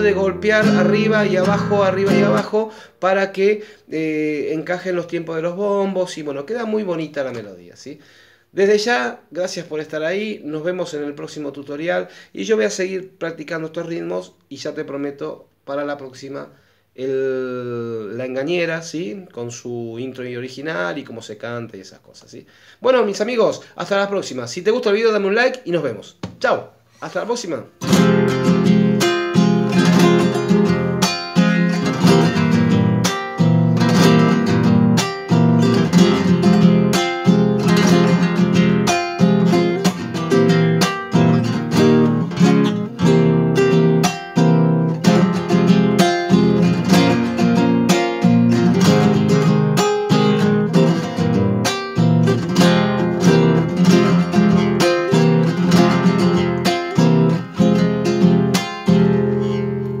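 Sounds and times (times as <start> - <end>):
classical guitar strummed slowly: 0.0 - 2.6, 27.8 - 60.0.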